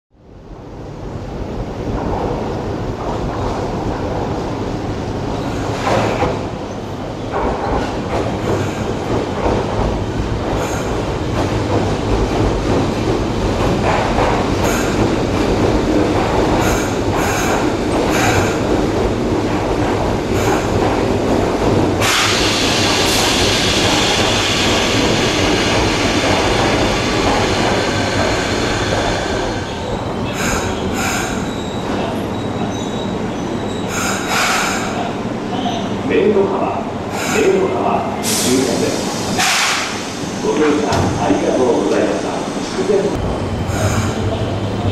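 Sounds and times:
train rumbling and clattering: 0:00.1 - 0:44.9
train wheel squeal: 0:22.0 - 0:35.0, 0:37.2 - 0:37.6, 0:43.6 - 0:44.6.

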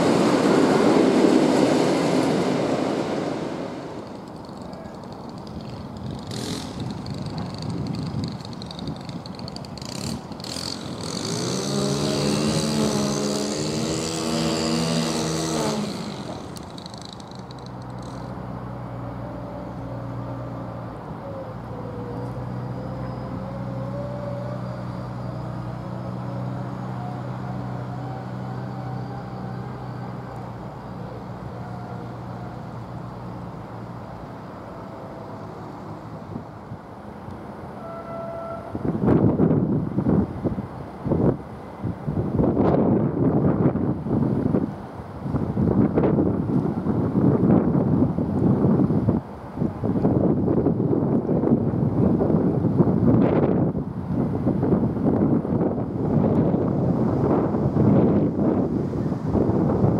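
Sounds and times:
faint rising whine: 0:00.0 - 0:04.5, 0:10.9 - 0:36.9.

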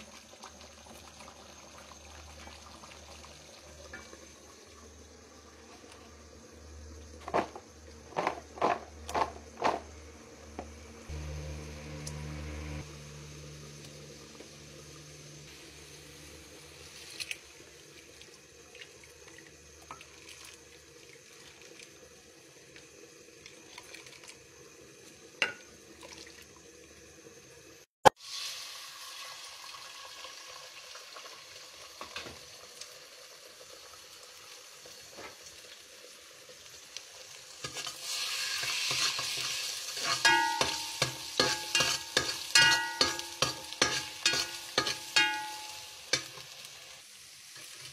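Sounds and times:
egg sizzling in hot oil: 0:00.0 - 0:06.5, 0:13.5 - 0:47.9
spatula scraping a pan: 0:37.6 - 0:46.5.

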